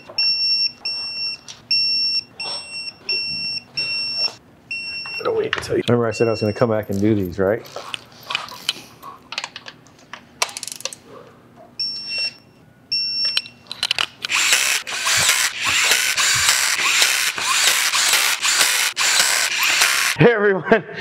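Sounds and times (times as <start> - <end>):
power tool running: 14.2 - 20.2
ratchet clicking: 14.2 - 20.2.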